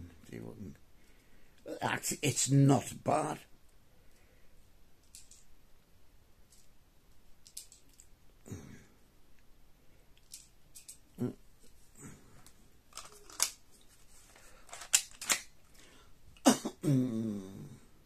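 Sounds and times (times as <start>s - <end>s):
plastic pistol clicks and rattles: 5.0s - 5.5s, 7.4s - 8.1s, 10.2s - 11.0s, 12.9s - 13.6s, 14.6s - 15.6s
short low vocal sound: 11.2s - 11.4s, 16.8s - 18.0s.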